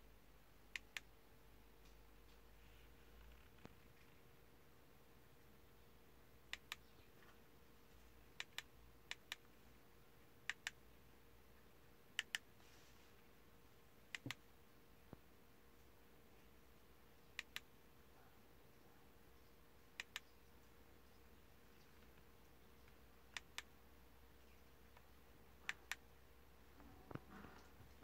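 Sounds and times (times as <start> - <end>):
faint steady hum: 0.0 - 28.0
computer mouse clicking: 0.7 - 1.1, 6.5 - 6.9, 8.4 - 9.5, 10.4 - 10.8, 12.2 - 12.5, 14.1 - 14.4, 17.4 - 17.7, 20.0 - 20.3, 23.3 - 23.7, 24.9 - 26.0.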